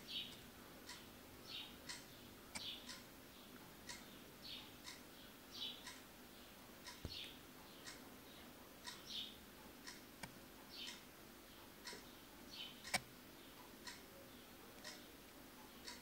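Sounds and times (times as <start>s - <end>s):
clock ticking faintly: 0.0s - 16.0s
sharp click: 12.8s - 13.1s.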